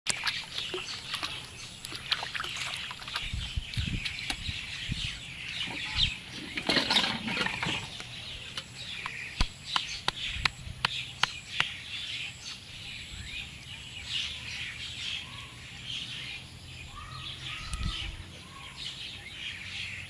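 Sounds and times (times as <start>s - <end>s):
water splashing and sloshing: 0.0s - 11.8s
birds chirping: 0.1s - 20.0s.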